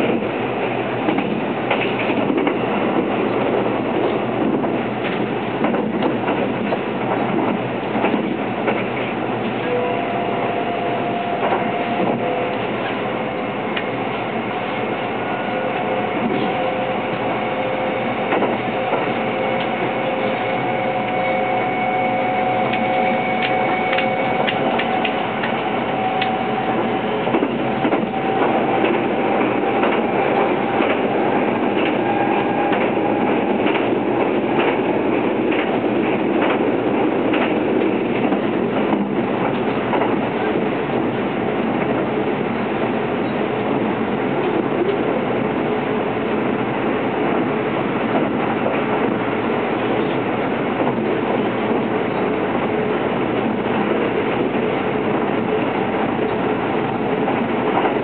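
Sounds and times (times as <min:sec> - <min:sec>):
train wheels rumbling on rail: 0:00.0 - 0:58.0.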